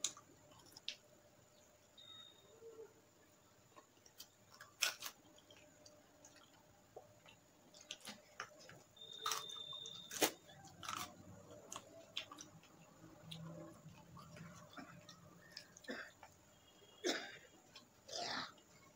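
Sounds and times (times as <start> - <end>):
chewing meat: 3.7 - 16.5
fingers tearing chicken: 4.1 - 5.6.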